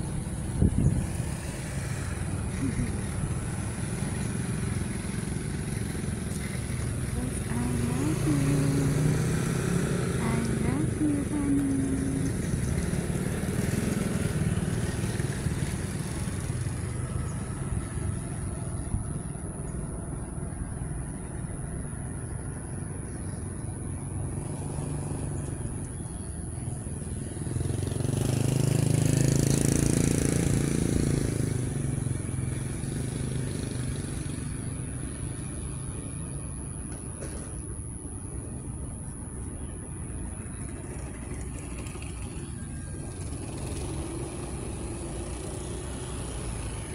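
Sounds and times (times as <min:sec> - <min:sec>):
vehicle passing: 0:00.0 - 0:23.0, 0:23.7 - 0:36.9, 0:38.1 - 0:46.9
vehicle engine rumbling: 0:00.0 - 0:46.9.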